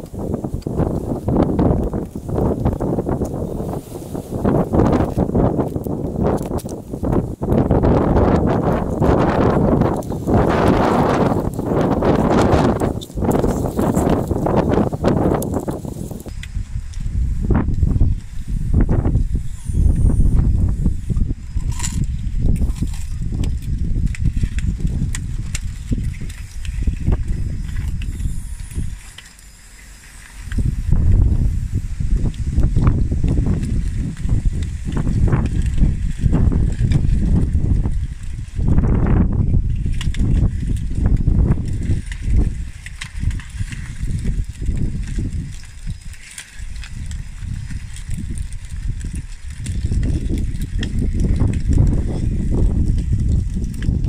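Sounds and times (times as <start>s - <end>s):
plastic track chain clicking on gravel: 0.0s - 31.4s, 32.0s - 54.0s
toy bulldozer rumbling: 0.0s - 54.0s
wind buffeting microphone: 0.0s - 54.0s
scattered clicks: 4.8s - 17.0s.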